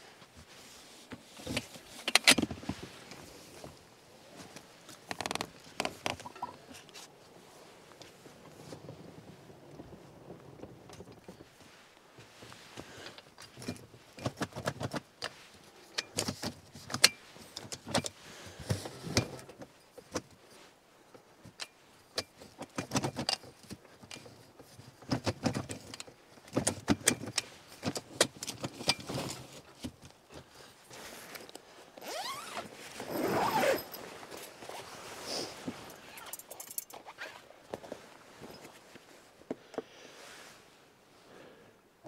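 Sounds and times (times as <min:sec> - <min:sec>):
tent canvas rustling: 0:30.4 - 0:39.4.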